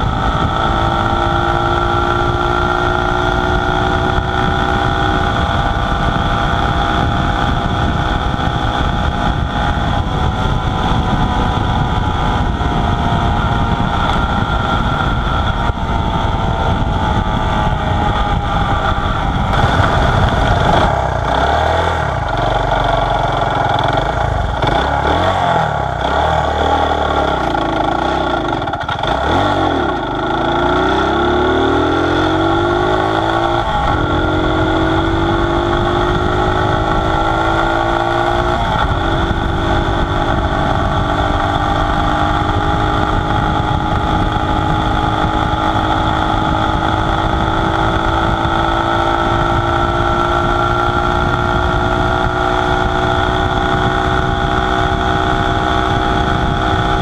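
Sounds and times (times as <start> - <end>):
motorcycle engine cruising: 0.0 - 57.0
wind rush: 0.0 - 57.0.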